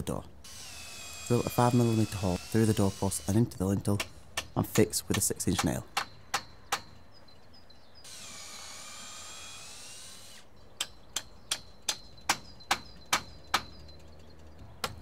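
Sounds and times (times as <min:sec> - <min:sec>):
cordless drill boring wood: 0:00.4 - 0:03.5, 0:08.1 - 0:10.4
hammer driving a nail: 0:10.8 - 0:13.7.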